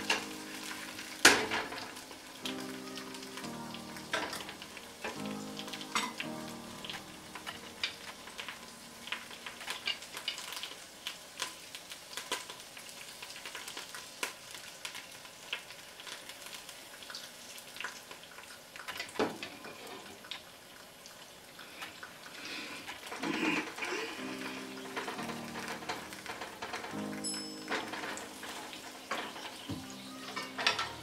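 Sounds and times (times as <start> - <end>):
vegetables sizzling in frying pan: 0.0 - 31.0.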